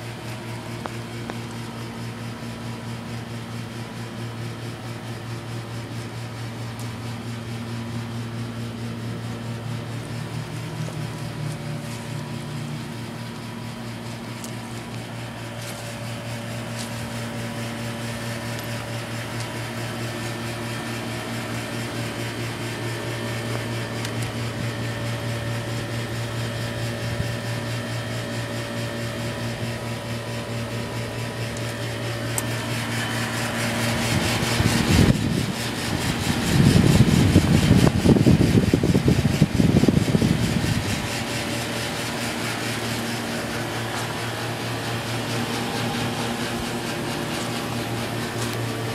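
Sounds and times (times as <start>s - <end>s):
air conditioner compressor hum: 0.0s - 48.9s
condenser fan whoosh: 0.0s - 48.9s
wind buffeting microphone: 33.9s - 41.6s.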